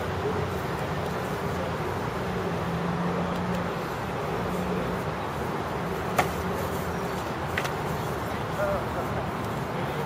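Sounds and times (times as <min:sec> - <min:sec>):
traffic noise: 0:00.0 - 0:10.0.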